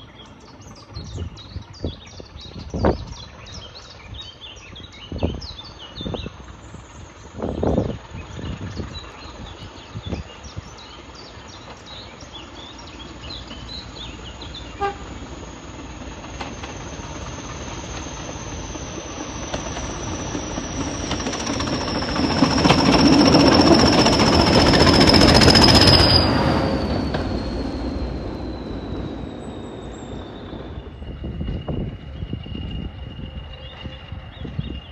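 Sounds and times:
diesel train engines: 0:00.0 - 0:34.9
train wheels on rails: 0:00.0 - 0:34.9
thin high whine: 0:14.7 - 0:34.3.

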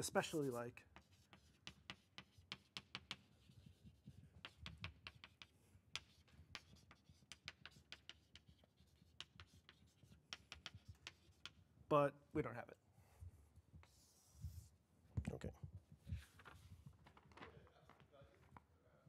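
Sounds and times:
chalk writing on blackboard: 0:00.0 - 0:11.7, 0:13.7 - 0:14.8.

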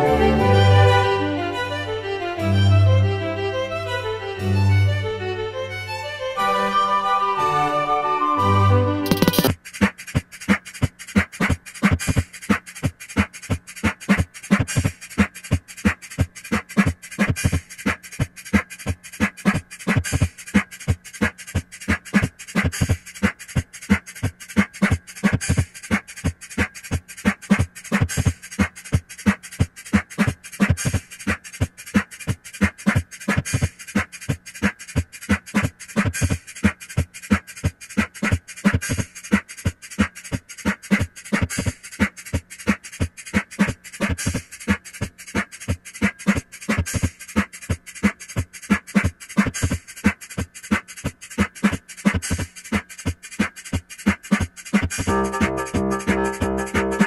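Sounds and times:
rhythmic clicks and thumps: 0:09.0 - 0:57.0.

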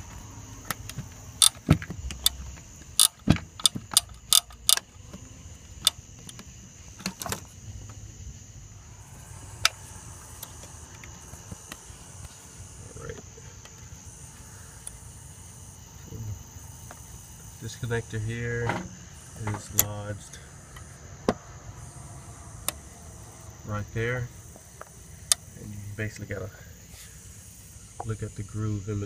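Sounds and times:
metal bolts clicking and clinking: 0:01.4 - 0:02.4, 0:03.0 - 0:04.9.

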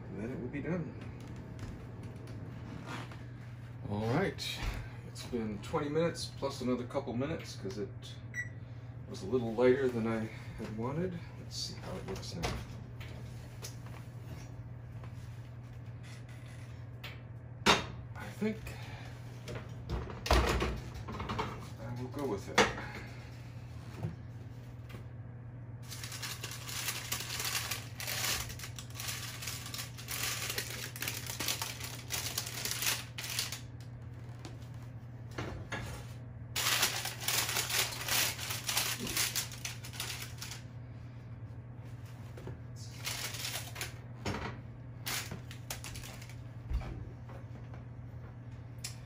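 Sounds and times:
steady low hum: 0:00.0 - 0:49.0
oven mitts rustling: 0:00.2 - 0:06.7, 0:20.8 - 0:48.4
parchment paper crinkling: 0:25.8 - 0:34.8, 0:36.6 - 0:40.7, 0:42.9 - 0:44.0, 0:45.0 - 0:46.4.

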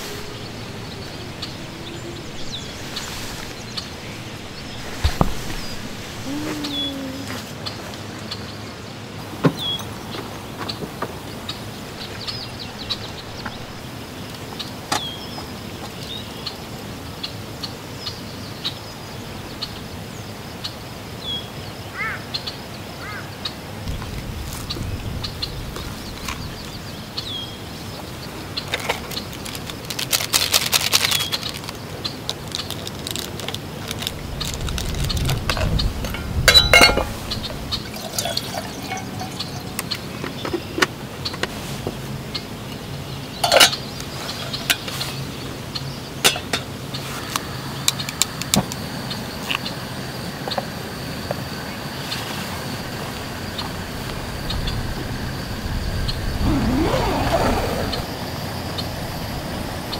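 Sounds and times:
birds chirping: 0:00.0 - 0:29.5, 0:31.0 - 0:50.7, 0:51.3 - 0:59.9
rustling and handling: 0:28.6 - 0:40.8
metal clink: 0:36.1 - 0:37.3, 0:37.9 - 0:40.0
water pouring into kettle: 0:37.8 - 0:39.7.

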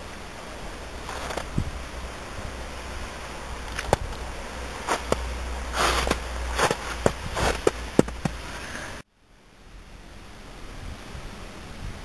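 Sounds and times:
steady low rumble: 0:00.0 - 0:09.0
snow crunching: 0:00.2 - 0:09.0.

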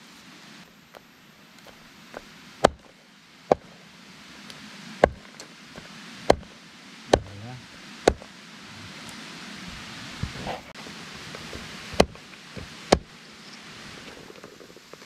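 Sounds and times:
steady hiss: 0:00.0 - 0:15.0
blade chopping on wood: 0:02.6 - 0:02.9, 0:05.0 - 0:05.3, 0:06.3 - 0:06.5, 0:07.1 - 0:07.4, 0:08.0 - 0:08.3, 0:11.9 - 0:13.1.

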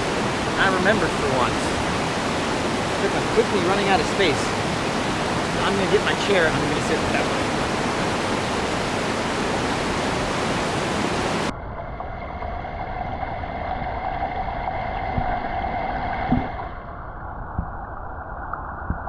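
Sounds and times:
rushing river: 0:00.0 - 0:11.5.

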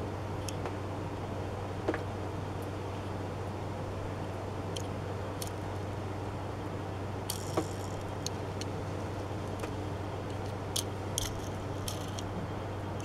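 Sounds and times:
steady low hum: 0:00.0 - 0:13.0
toy car handling clicks: 0:07.3 - 0:08.8, 0:09.5 - 0:12.3.

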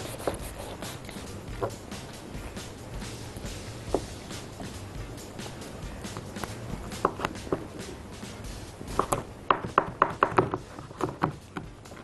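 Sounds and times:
knocks on wooden board: 0:08.9 - 0:11.7.

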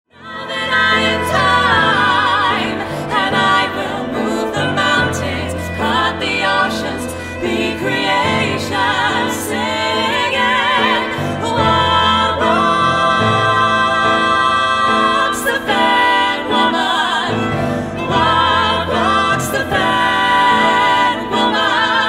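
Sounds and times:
women singing in harmony: 0:00.1 - 0:22.0.

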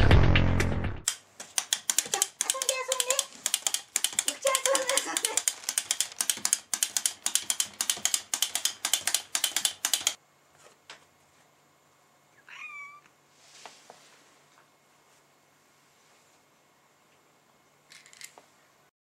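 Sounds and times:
clockwork toy clicking: 0:01.1 - 0:10.2
cat meowing: 0:12.4 - 0:13.1.

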